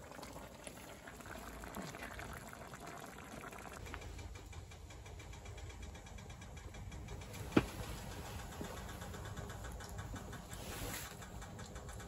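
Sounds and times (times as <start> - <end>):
pot bubbling: 0.0 - 5.2.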